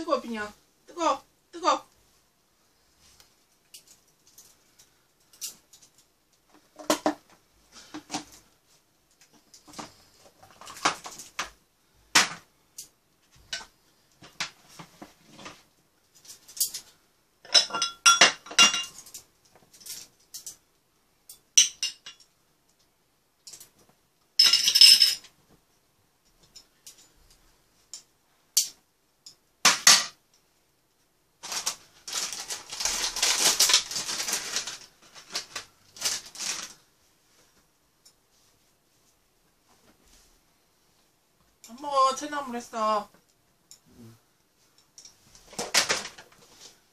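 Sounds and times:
packet crinkling: 0:31.4 - 0:36.8.

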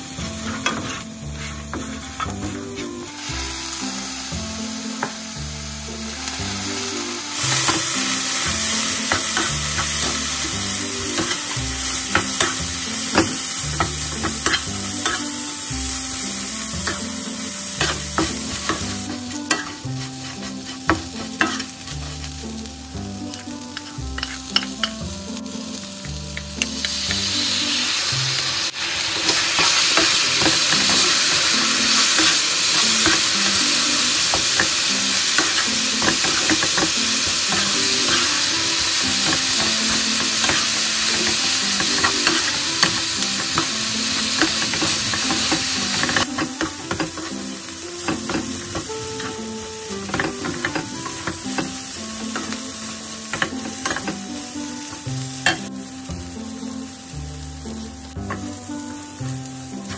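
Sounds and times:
fish sizzling in oil: 0:00.0 - 0:59.9
spatula scraping a pan: 0:00.2 - 0:03.0, 0:17.8 - 0:22.2.

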